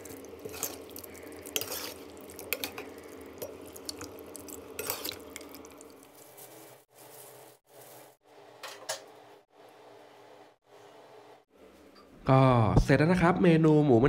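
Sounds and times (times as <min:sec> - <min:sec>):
spoon tossing wet salad: 0:00.0 - 0:08.2.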